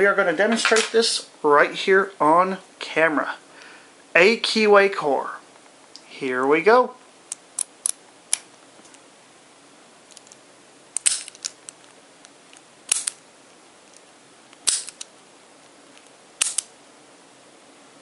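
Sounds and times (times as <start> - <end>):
padlock metallic clacks: 16.4 - 16.7.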